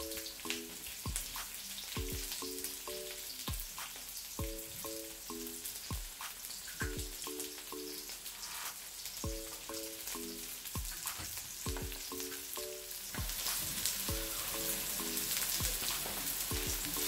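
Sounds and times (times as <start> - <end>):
onions sizzling in hot oil: 0.0 - 17.0
background music with bass thump: 1.1 - 2.4, 3.5 - 4.9, 5.9 - 7.2, 9.2 - 9.6, 10.8 - 12.2, 13.2 - 14.4, 15.6 - 17.0.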